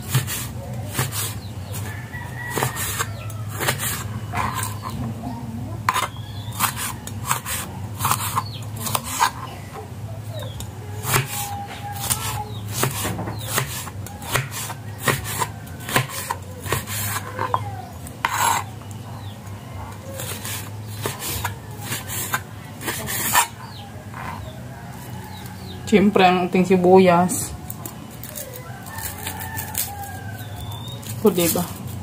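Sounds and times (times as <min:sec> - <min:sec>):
steady low hum: 0:00.0 - 0:32.0
knife chopping on cutting board: 0:02.5 - 0:04.8, 0:05.9 - 0:09.4, 0:11.0 - 0:17.6, 0:20.2 - 0:23.5.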